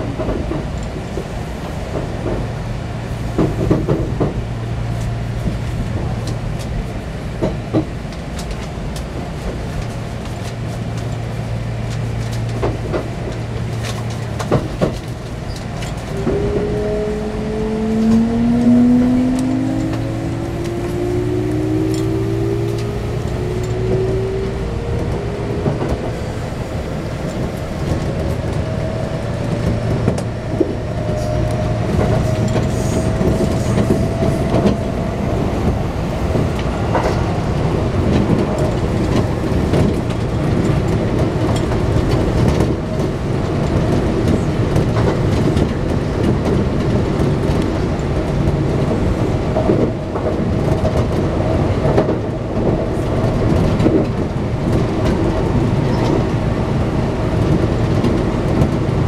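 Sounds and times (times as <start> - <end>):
low hum and rumble: 0.0 - 59.0
train motor whine rising: 16.1 - 37.4.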